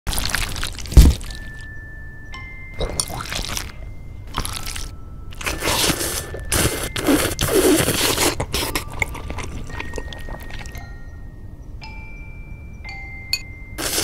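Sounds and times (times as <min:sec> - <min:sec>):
chewing: 0:00.1 - 0:01.6, 0:02.8 - 0:10.8
person slurping noodles: 0:04.3 - 0:10.7, 0:13.8 - 0:14.0.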